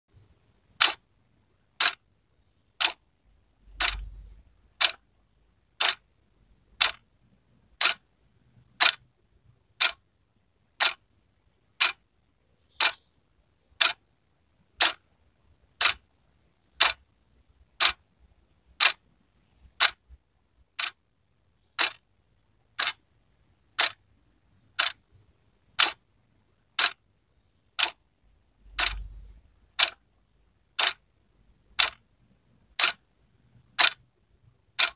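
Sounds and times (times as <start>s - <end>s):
wall clock ticking: 0.7s - 1.1s, 1.7s - 2.1s, 2.7s - 5.1s, 5.7s - 6.1s, 6.7s - 9.1s, 9.7s - 10.1s, 10.7s - 11.1s, 11.7s - 12.1s, 12.7s - 13.1s, 13.7s - 15.1s, 15.7s - 18.1s, 18.7s - 21.1s, 21.7s - 24.0s, 24.6s - 27.1s, 27.7s - 31.1s, 31.7s - 34.9s.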